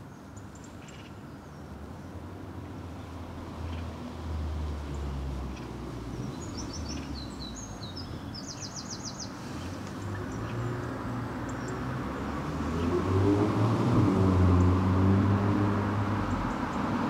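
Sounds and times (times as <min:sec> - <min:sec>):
songbird singing with trill: 0:05.6 - 0:11.9.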